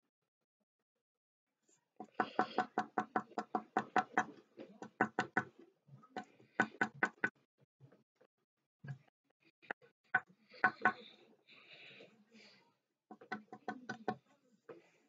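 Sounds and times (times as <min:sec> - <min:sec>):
pen tapping on paper: 0:02.0 - 0:05.6, 0:06.2 - 0:07.3, 0:10.2 - 0:11.1, 0:13.1 - 0:14.2.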